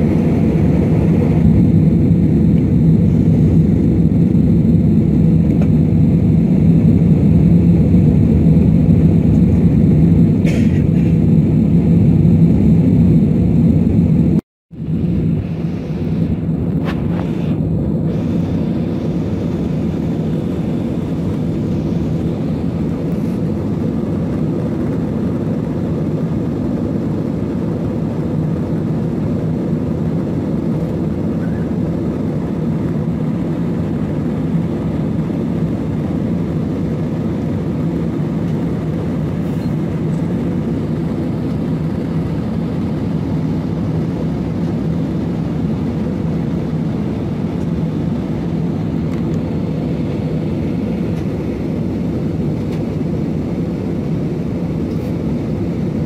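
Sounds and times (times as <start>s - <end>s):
rushing air: 0.0s - 27.1s
jet engine drone: 0.0s - 56.0s
low hum: 0.0s - 56.0s.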